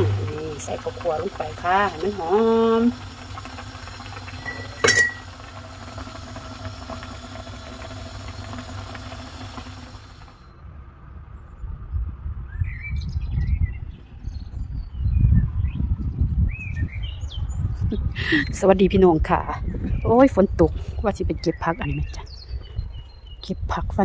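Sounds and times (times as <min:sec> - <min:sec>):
metallic clink: 0:04.4 - 0:05.2
low rumbling on microphone: 0:10.7 - 0:24.0
small birds chirping: 0:19.6 - 0:23.8.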